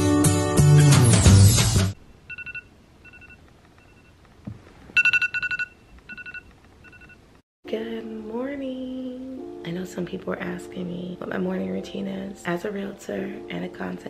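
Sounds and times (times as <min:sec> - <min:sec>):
intro music: 0:00.0 - 0:02.0
two-tone electronic alarm beeps: 0:02.3 - 0:04.1, 0:05.0 - 0:07.2.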